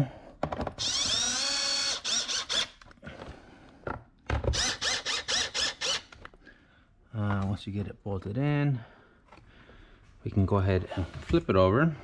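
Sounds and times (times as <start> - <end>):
cordless drill whine: 0.8 - 2.8, 4.5 - 6.2.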